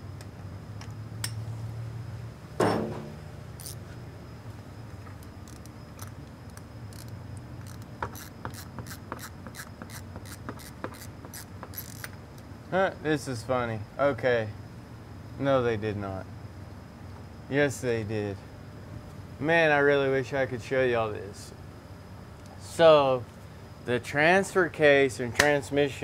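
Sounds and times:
steady low hum: 0:00.0 - 0:26.0
metallic clank: 0:02.6 - 0:03.2
ratchet wrench clicking: 0:03.6 - 0:03.8, 0:05.4 - 0:12.2.

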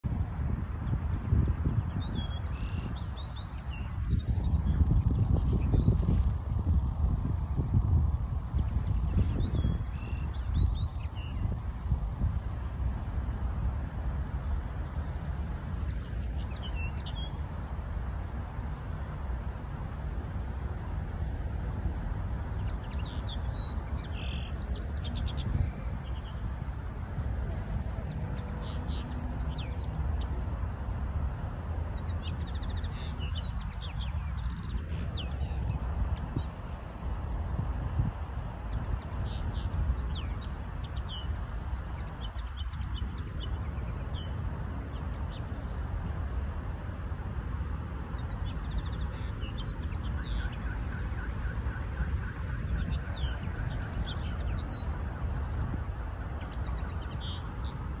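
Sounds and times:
steady low rumble: 0:00.0 - 0:50.6
bird singing repeated notes: 0:00.8 - 0:06.3, 0:08.7 - 0:11.6, 0:15.8 - 0:17.4, 0:22.5 - 0:26.5, 0:28.0 - 0:30.7, 0:31.9 - 0:36.9, 0:37.5 - 0:45.9, 0:48.1 - 0:55.6, 0:56.2 - 0:58.0.

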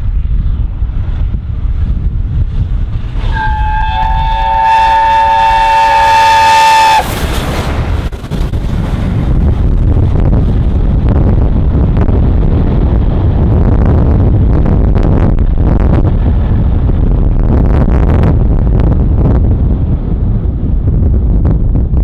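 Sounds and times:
steam train rumbling past: 0:00.0 - 0:11.0
wind noise on microphone: 0:00.0 - 0:22.0.

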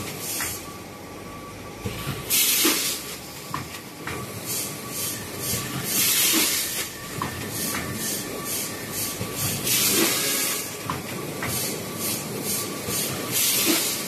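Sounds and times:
pneumatic air hissing: 0:02.3 - 0:03.2, 0:04.4 - 0:06.9, 0:07.5 - 0:10.8, 0:11.5 - 0:14.0.

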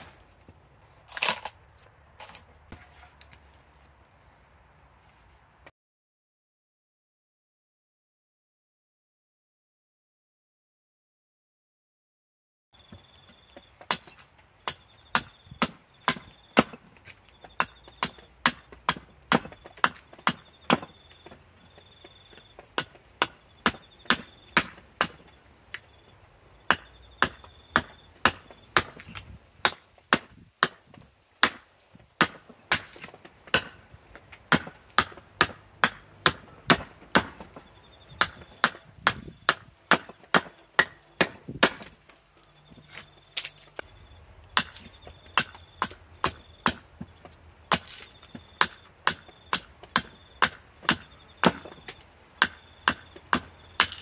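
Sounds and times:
axe chopping wood: 0:13.8 - 0:21.4, 0:22.6 - 0:25.9, 0:26.7 - 0:42.1, 0:44.6 - 0:54.0.

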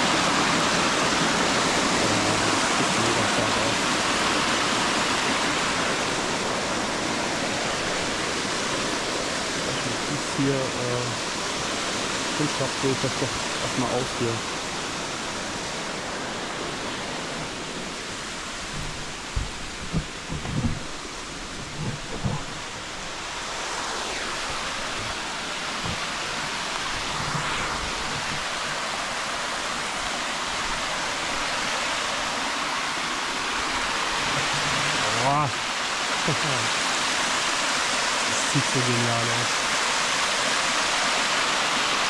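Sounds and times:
waterfall rushing: 0:00.0 - 0:42.0
low thumps: 0:18.6 - 0:22.8.

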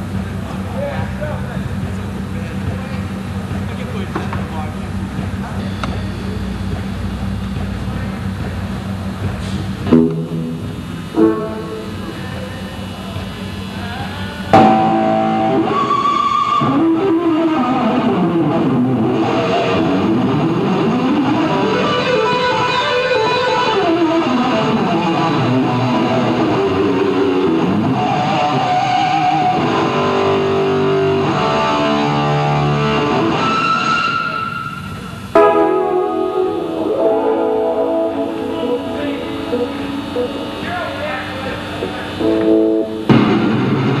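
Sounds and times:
electric guitar playing runs: 0:03.0 - 0:44.0.

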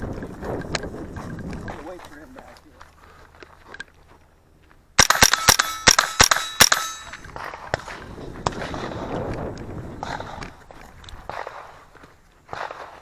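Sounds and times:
rifle shots with ringing: 0:05.0 - 0:07.4.

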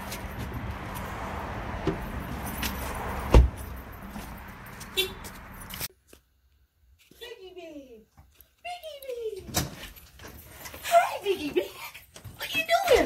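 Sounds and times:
outdoor background noise: 0:00.0 - 0:13.0
light jingling and clicking: 0:02.1 - 0:05.9
car door shutting: 0:03.3 - 0:03.6.

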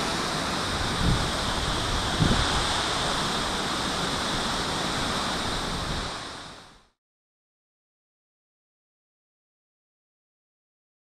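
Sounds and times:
wind thumps on microphone: 0:00.0 - 0:06.3
waterfall rushing: 0:00.0 - 0:07.0.

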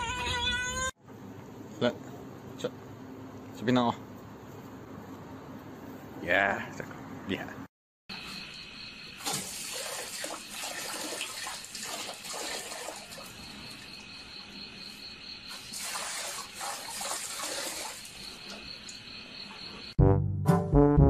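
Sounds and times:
crickets chirping: 0:08.1 - 0:20.0
water splashing into metal basin: 0:09.2 - 0:13.9, 0:15.5 - 0:18.7.

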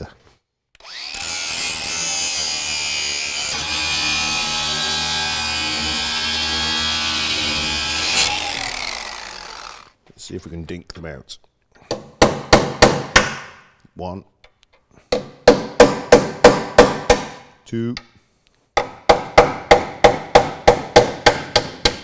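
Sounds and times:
power file grinding steel: 0:00.8 - 0:10.0.

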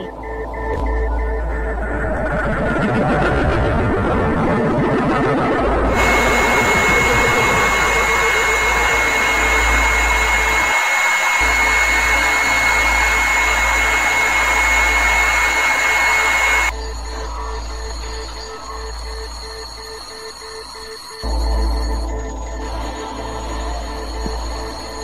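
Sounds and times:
hissing electronic noise: 0:05.8 - 0:25.0.

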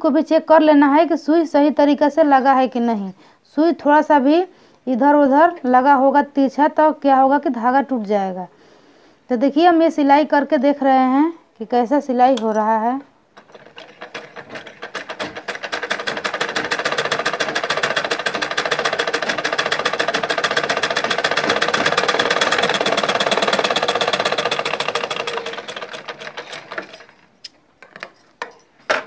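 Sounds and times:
sewing machine clatter: 0:13.4 - 0:29.0.

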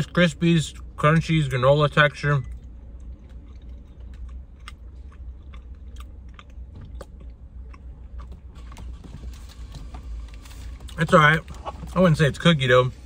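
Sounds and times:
low hum: 0:00.0 - 0:13.0
person chewing crunchy bar: 0:02.4 - 0:11.7.

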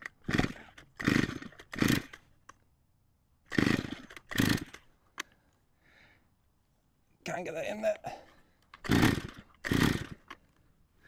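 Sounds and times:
chainsaw recoil starter pulls: 0:00.0 - 0:02.5, 0:03.5 - 0:05.3, 0:08.7 - 0:10.5.

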